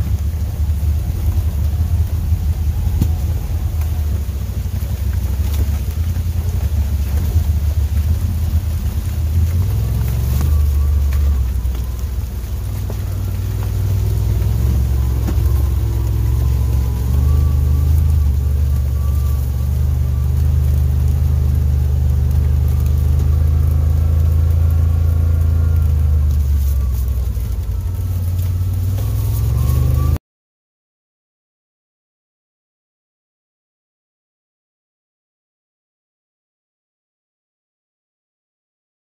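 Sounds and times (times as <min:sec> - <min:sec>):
vehicle engine droning: 0:00.0 - 0:30.2.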